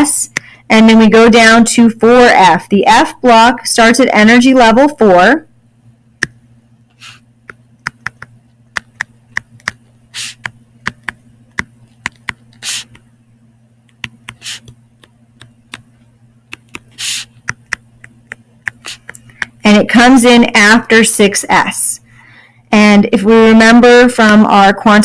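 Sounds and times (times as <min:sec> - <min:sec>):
faint steady hum: 0:00.0 - 0:25.0
stylus tapping on touchscreen: 0:07.5 - 0:13.0, 0:13.9 - 0:15.9, 0:16.5 - 0:19.6.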